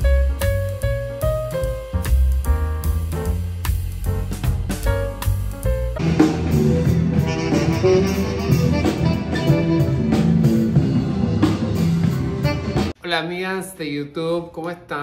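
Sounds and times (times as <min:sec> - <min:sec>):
recorded background music: 0:00.0 - 0:13.7
street band playing live: 0:06.0 - 0:13.0.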